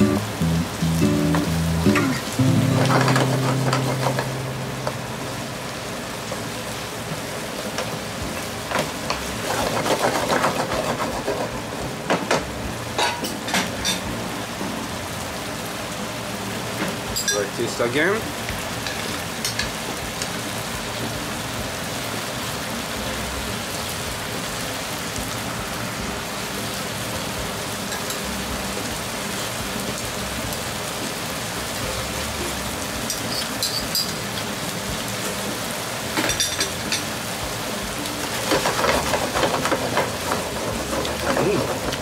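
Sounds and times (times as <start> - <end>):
sauce sizzling in a frying pan: 0.0 - 42.0
wooden spatula scraping: 9.4 - 11.5.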